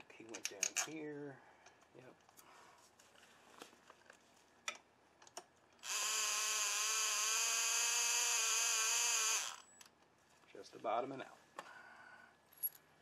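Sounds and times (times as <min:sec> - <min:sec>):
bolts and tool clicking: 0:00.3 - 0:01.0.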